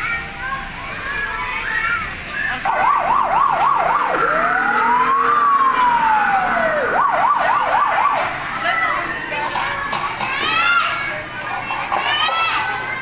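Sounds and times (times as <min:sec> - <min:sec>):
electronic siren yelping: 0:02.6 - 0:08.4.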